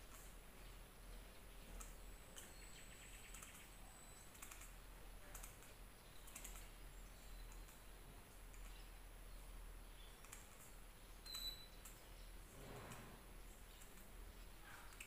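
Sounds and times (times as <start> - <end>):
faint low hum: 0.0 - 15.0
faint high chirp: 2.4 - 4.7, 6.0 - 7.8, 11.2 - 12.4
faint clicks: 4.3 - 6.7, 7.5 - 7.9, 10.2 - 12.0.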